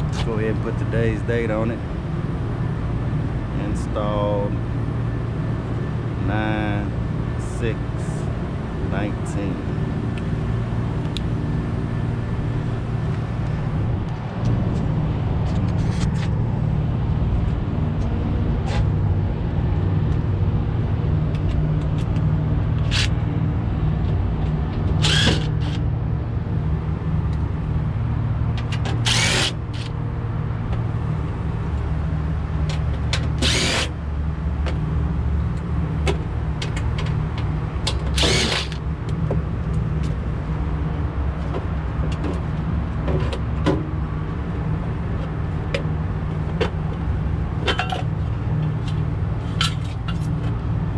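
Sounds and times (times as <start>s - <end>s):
low machinery hum: 0.0s - 50.9s
cordless driver whirring: 22.8s - 23.2s, 24.9s - 25.8s, 28.9s - 29.9s, 33.2s - 34.0s, 38.0s - 38.8s.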